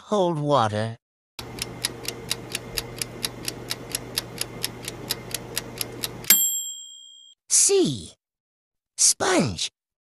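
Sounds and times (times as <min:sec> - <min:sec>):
clock ticking countdown timer: 0:01.4 - 0:06.4.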